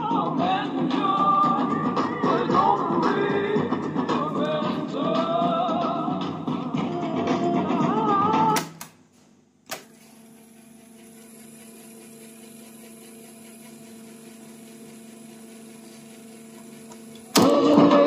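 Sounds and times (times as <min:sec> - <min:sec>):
music: 0:00.0 - 0:08.8, 0:17.4 - 0:18.0
cassette deck reels whirring: 0:09.6 - 0:18.0.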